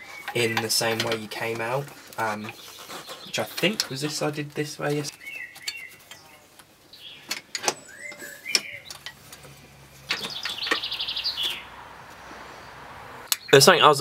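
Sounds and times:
birds chirping: 0.0s - 14.0s
bird trill: 5.2s - 6.3s, 6.9s - 9.1s, 10.1s - 12.8s.

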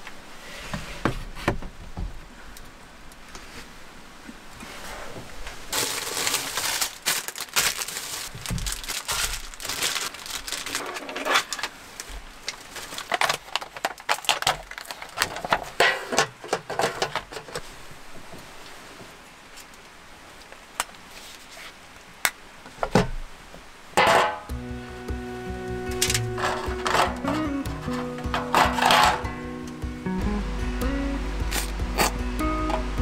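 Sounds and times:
foil pot crackling: 5.6s - 17.6s, 25.9s - 29.4s
plastic packaging crinkling: 5.7s - 15.8s, 26.0s - 29.3s.

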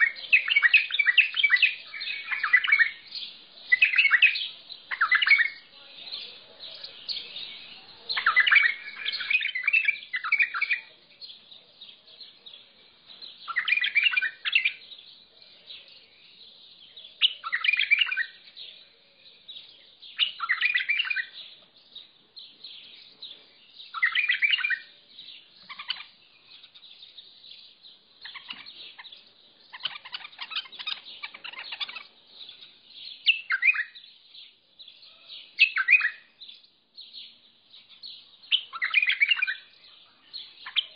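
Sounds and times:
bird singing warbled phrases: 0.0s - 40.9s.

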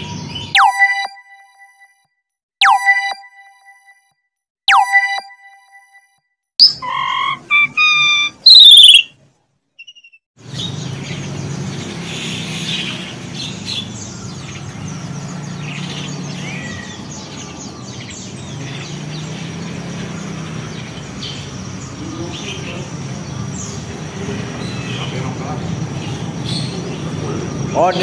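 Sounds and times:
caged songbirds chirping: 0.0s - 0.7s, 6.6s - 28.0s.

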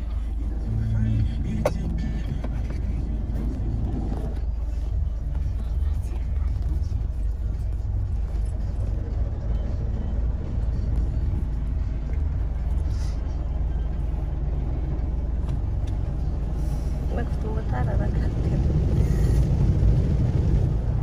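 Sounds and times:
car wash machinery rumble: 0.0s - 21.0s.

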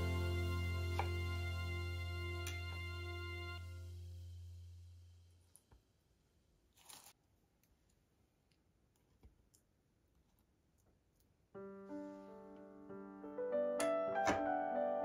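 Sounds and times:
background music: 0.0s - 4.0s, 11.8s - 15.0s
piano music: 0.0s - 4.0s, 11.6s - 15.0s.

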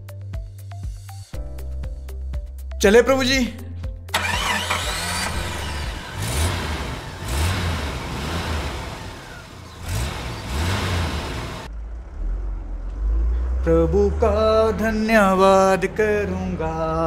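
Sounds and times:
engine starting and revving: 4.1s - 16.6s.

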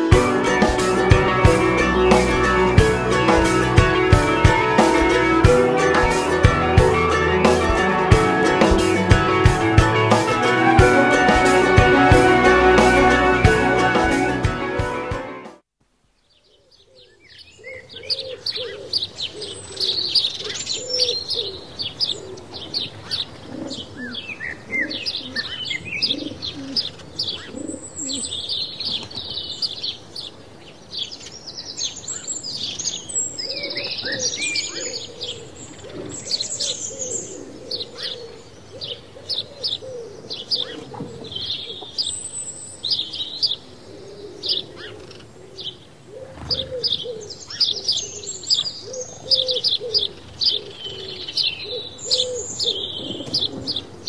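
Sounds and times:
songbirds chirping: 16.0s - 54.0s
doves cooing: 17.6s - 28.4s, 33.4s - 42.1s, 43.7s - 54.0s.

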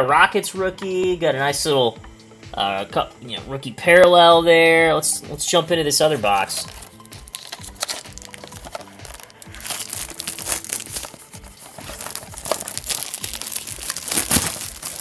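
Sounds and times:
background music with steady beat: 0.0s - 15.0s
packaging crinkling and tearing: 6.5s - 15.0s.

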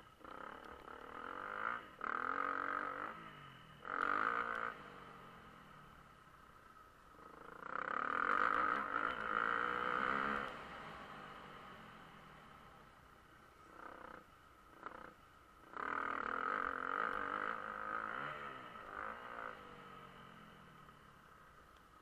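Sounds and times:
motocross bike engine revving: 0.2s - 6.1s, 7.1s - 21.1s.

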